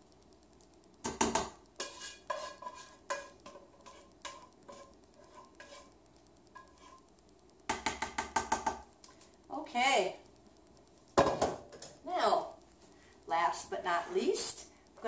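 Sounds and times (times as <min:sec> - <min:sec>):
spatula tapping against pot: 0:01.0 - 0:02.5, 0:07.7 - 0:08.9
metal spatula scraping a pot: 0:01.8 - 0:07.1.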